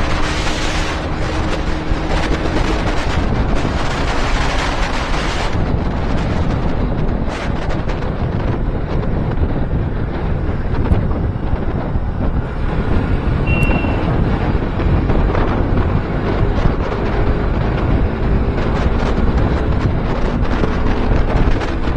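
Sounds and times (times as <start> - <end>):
motorcycle engine and road noise: 0.0 - 21.9
wind buffeting microphone: 0.0 - 21.9
brief high tone: 13.5 - 14.2.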